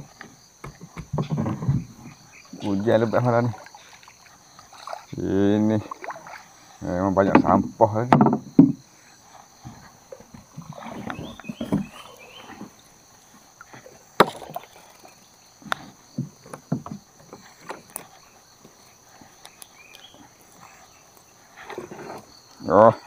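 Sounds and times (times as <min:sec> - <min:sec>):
high insect drone: 0:00.0 - 0:23.0
water splashing: 0:02.0 - 0:07.6, 0:10.0 - 0:18.1
boat knocking: 0:07.1 - 0:08.8, 0:09.6 - 0:12.8, 0:14.2 - 0:17.9.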